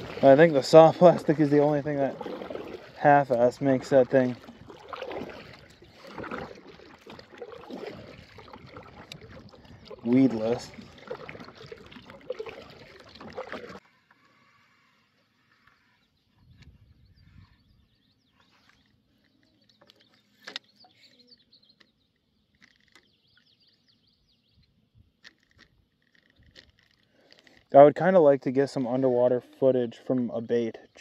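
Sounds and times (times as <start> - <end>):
kayak paddle strokes: 0.0 - 16.8
water: 0.0 - 31.0
wind noise: 7.7 - 12.7, 16.4 - 18.0
faint bird chirps: 14.3 - 24.8
fishing rod clicks: 22.5 - 23.1, 24.6 - 27.7.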